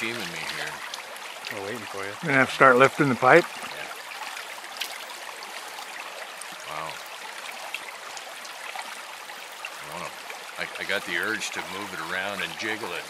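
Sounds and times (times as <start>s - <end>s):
water poured into pipe: 0.0s - 5.6s
creek running: 0.0s - 13.0s.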